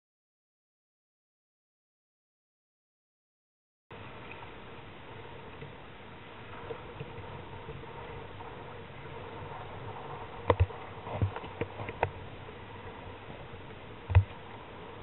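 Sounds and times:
choppy water: 0:03.9 - 0:15.0.

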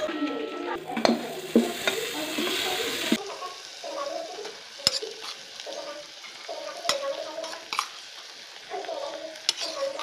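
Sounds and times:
frying sizzle: 0:00.0 - 0:10.0
metal spatula scraping a wok: 0:04.8 - 0:08.0, 0:09.4 - 0:10.0.

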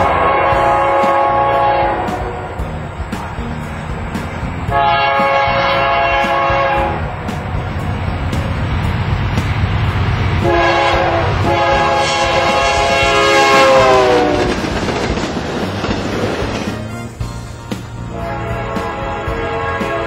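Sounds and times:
train air horn: 0:00.0 - 0:02.6, 0:04.7 - 0:07.4, 0:10.4 - 0:14.6, 0:16.6 - 0:17.4, 0:18.1 - 0:20.0
rumble of engines and wheels: 0:00.0 - 0:20.0.

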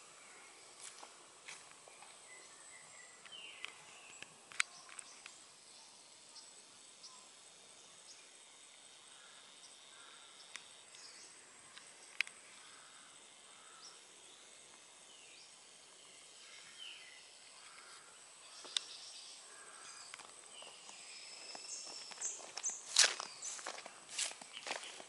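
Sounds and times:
high insect drone: 0:00.0 - 0:25.0
close footsteps: 0:00.7 - 0:02.2, 0:20.1 - 0:25.0.

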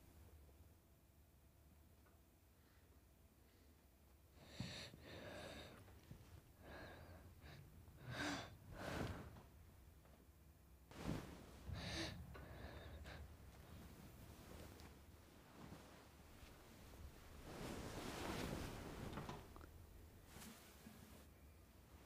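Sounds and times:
child gasping and breathing: 0:04.4 - 0:05.8, 0:06.6 - 0:09.2, 0:11.7 - 0:13.4.

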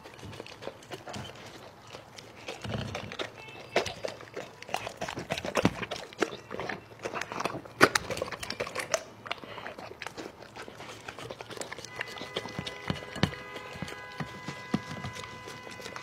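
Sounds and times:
dog chomping and licking: 0:00.0 - 0:16.0.

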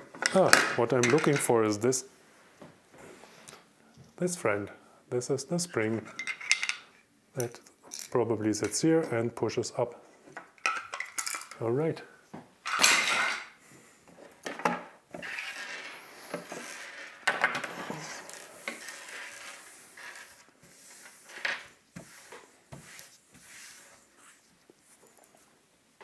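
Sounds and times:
hands brushing debris on table: 0:15.2 - 0:17.2, 0:17.8 - 0:25.4.

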